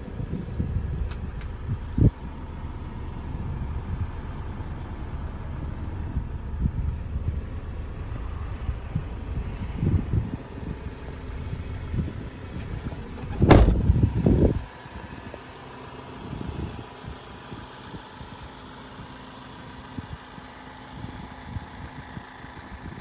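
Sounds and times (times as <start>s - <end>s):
diesel engine idling: 0.0s - 23.0s
loud thump: 13.3s - 14.0s.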